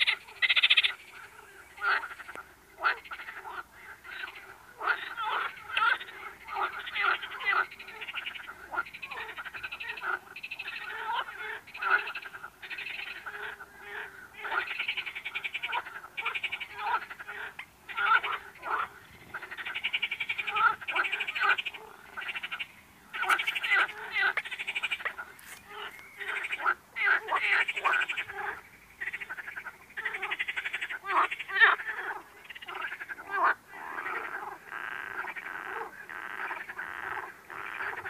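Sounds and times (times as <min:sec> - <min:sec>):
frogs croaking in chorus: 0:00.0 - 0:38.0.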